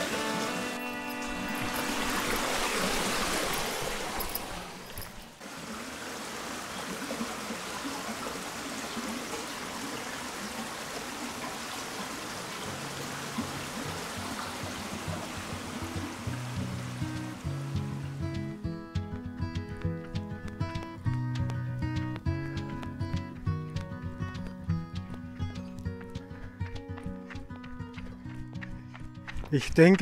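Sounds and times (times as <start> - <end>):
background music: 0.0 - 3.2, 15.4 - 29.6
stream water rushing: 0.0 - 18.8.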